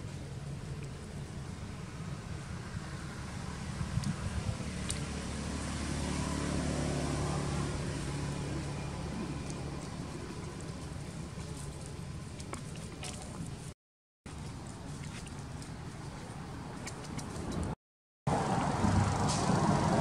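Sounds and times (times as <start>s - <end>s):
vehicle engine passing: 2.6s - 11.0s, 18.3s - 20.0s.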